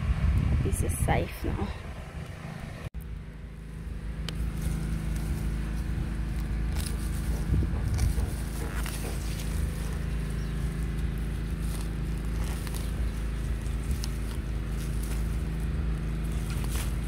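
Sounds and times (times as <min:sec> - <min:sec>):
steady low hum: 0:00.0 - 0:17.0
dry grass and roots tearing: 0:03.6 - 0:17.0.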